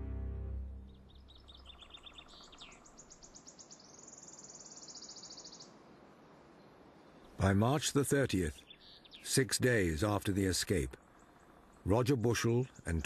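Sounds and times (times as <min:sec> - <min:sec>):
small songbird singing: 0:00.8 - 0:05.8, 0:08.3 - 0:13.0.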